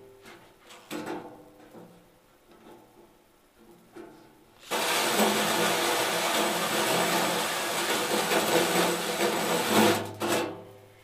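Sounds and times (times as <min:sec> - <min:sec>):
drill hole saw cutting metal: 0:04.6 - 0:09.7.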